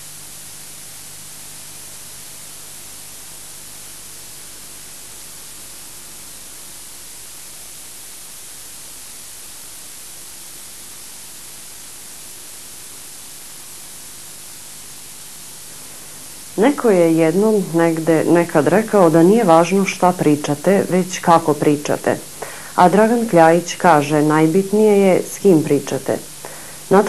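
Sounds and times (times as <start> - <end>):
faint low hum: 0.0 - 27.0
recording noise hiss: 0.0 - 27.0.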